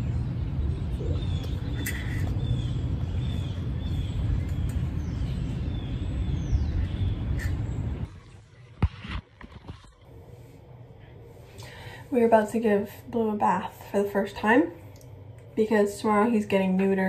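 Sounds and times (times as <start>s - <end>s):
birds chirping: 0.0s - 8.8s.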